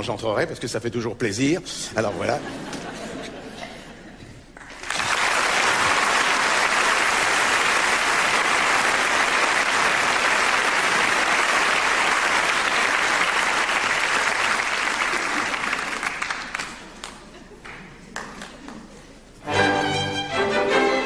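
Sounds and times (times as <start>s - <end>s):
audience applauding: 4.5s - 19.0s.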